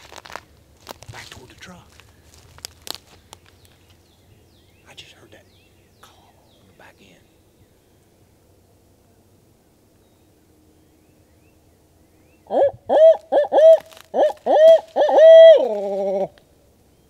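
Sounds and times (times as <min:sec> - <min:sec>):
owl hooting call: 0:12.4 - 0:16.4.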